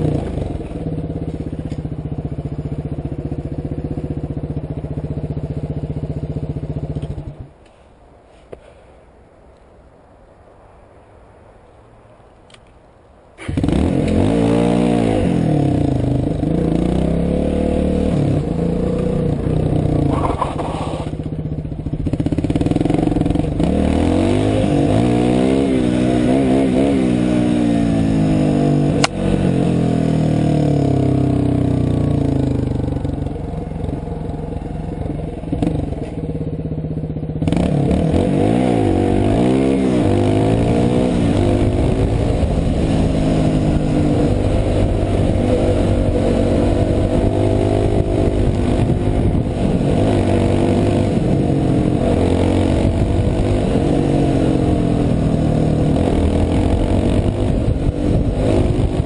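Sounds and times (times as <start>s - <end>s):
dirt bike engine revving: 0.0s - 7.4s, 13.4s - 59.0s
sharp click: 29.0s - 29.2s.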